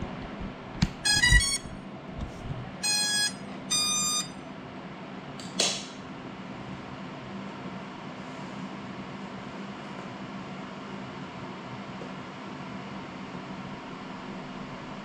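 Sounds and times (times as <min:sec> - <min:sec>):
steady low hum: 0:00.0 - 0:05.3
motor start-up beeps: 0:00.9 - 0:01.8, 0:02.8 - 0:04.4.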